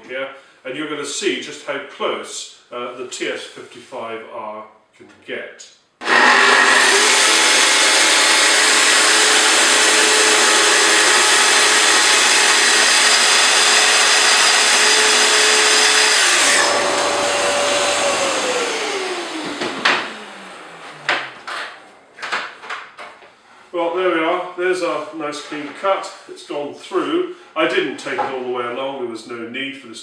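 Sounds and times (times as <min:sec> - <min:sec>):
saw motor winding down: 0:06.0 - 0:21.4
track saw cutting: 0:06.0 - 0:21.9.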